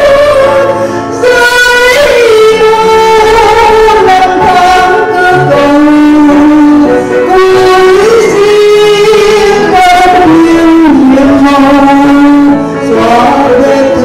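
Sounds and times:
instrumental accompaniment: 0.0s - 14.0s
woman singing a hymn: 0.0s - 14.0s.

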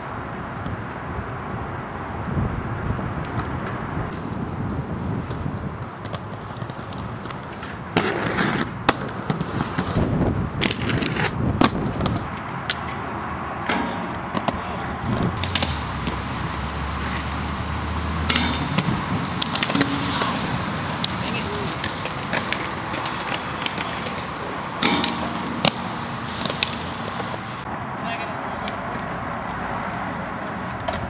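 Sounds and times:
skate wheels rolling on concrete: 0.0s - 31.0s
skates clacking on ledges: 13.6s - 15.8s, 18.3s - 26.8s.

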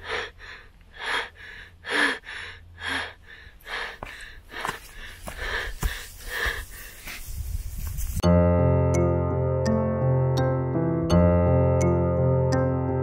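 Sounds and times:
heavy breathing: 0.0s - 7.3s.

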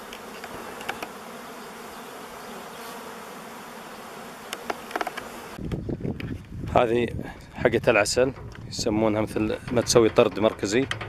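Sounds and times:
honeybees buzzing: 0.0s - 5.9s.

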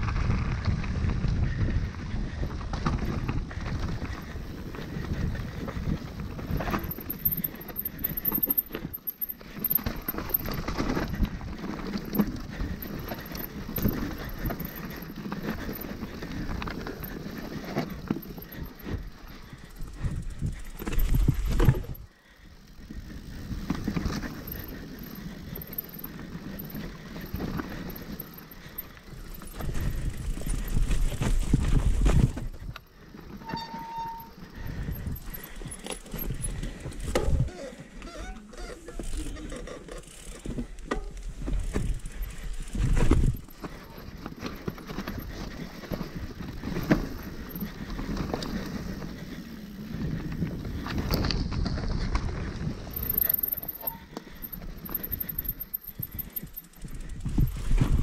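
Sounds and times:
wind buffeting microphone: 0.0s - 8.2s, 11.0s - 22.1s, 28.6s - 32.8s, 34.5s - 37.6s, 56.0s - 58.0s
bike tyres crunching on dirt: 0.0s - 58.0s
bike frame rattling: 2.3s - 58.0s
brief squeal: 33.4s - 34.4s.

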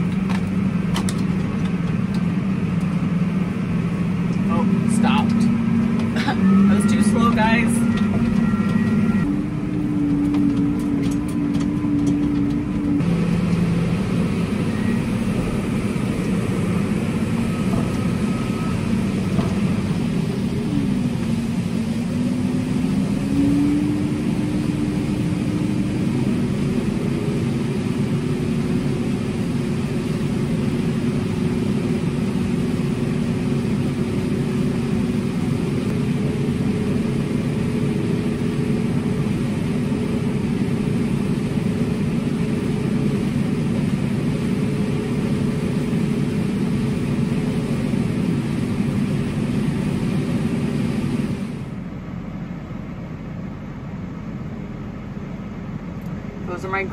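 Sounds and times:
tractor engine under load: 0.0s - 23.2s.

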